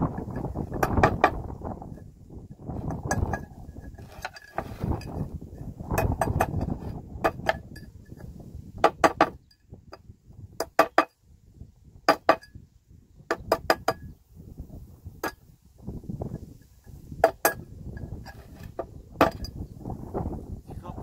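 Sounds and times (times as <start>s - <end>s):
rough scraping on metal: 2.7s - 8.4s, 16.6s - 19.6s.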